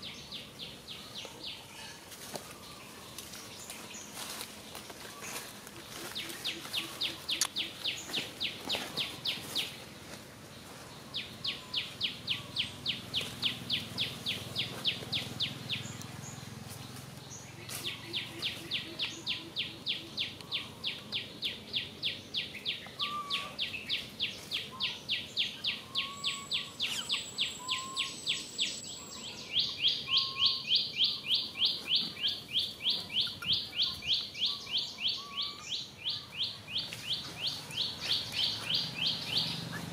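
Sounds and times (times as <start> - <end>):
short lower bird calls: 17.6 - 39.9.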